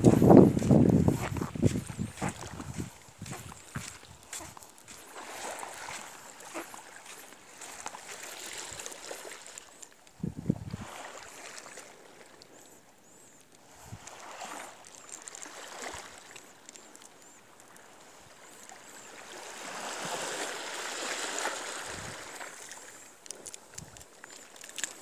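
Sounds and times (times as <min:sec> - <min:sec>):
rushing water or wind: 0:00.0 - 0:12.5, 0:13.6 - 0:25.0.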